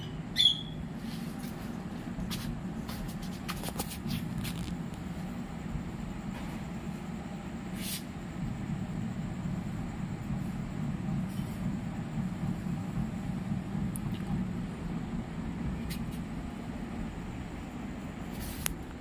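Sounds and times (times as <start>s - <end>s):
budgerigar squawk: 0.0s - 0.8s
steady low hum: 0.0s - 19.0s.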